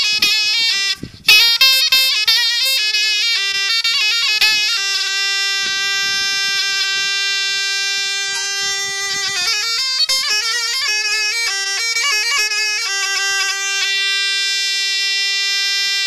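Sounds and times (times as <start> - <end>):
zurna folk melody: 0.0 - 16.0.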